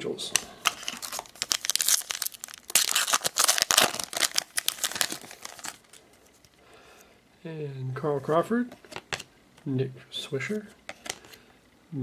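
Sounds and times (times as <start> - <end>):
wrapper crinkling and tearing: 0.6 - 6.6.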